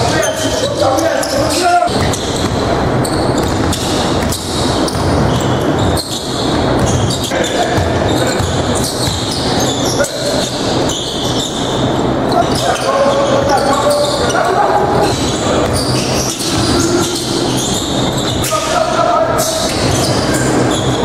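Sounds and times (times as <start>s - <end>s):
indistinct voices: 0.0s - 2.2s, 12.1s - 21.0s.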